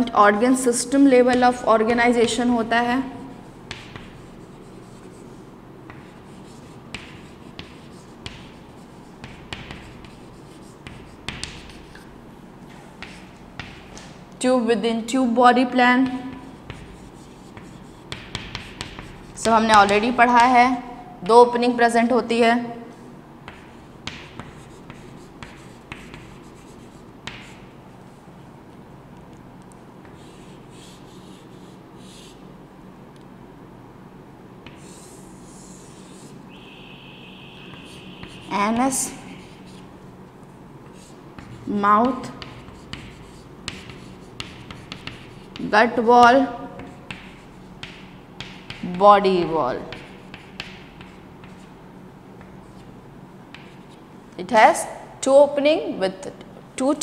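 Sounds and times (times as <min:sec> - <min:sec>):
chalk scratching on chalkboard: 0:01.2 - 0:12.1, 0:13.0 - 0:13.8, 0:16.0 - 0:20.9, 0:22.9 - 0:27.7, 0:30.0 - 0:32.5, 0:34.6 - 0:39.9, 0:40.8 - 0:51.8, 0:53.5 - 0:54.0
chalk tapping on chalkboard: 0:01.2 - 0:12.1, 0:12.7 - 0:14.2, 0:16.0 - 0:21.4, 0:23.4 - 0:27.7, 0:30.0 - 0:32.4, 0:34.6 - 0:39.9, 0:40.8 - 0:51.8, 0:52.4 - 0:52.9, 0:53.5 - 0:54.0.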